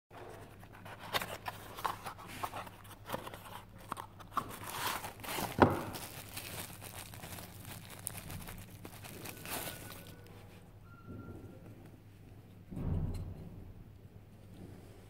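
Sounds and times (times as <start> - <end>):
bubble wrap scrapes and crinkles: 0.5 - 10.7
cardboard box handled: 0.8 - 6.6.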